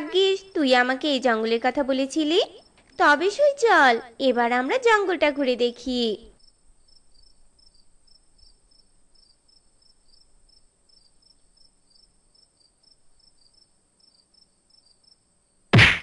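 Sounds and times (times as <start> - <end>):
crickets chirping: 6.4 - 15.7.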